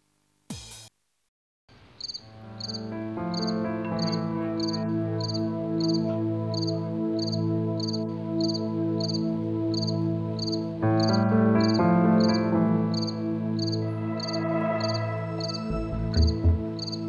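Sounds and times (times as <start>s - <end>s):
crickets chirping: 1.8s - 17.0s.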